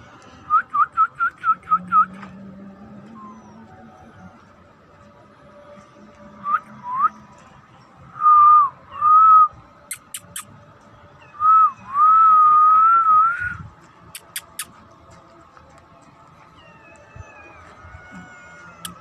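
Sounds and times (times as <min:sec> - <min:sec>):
quick sharp clicks: 0:09.9 - 0:10.5, 0:14.1 - 0:14.8
person whistling: 0:11.4 - 0:13.6.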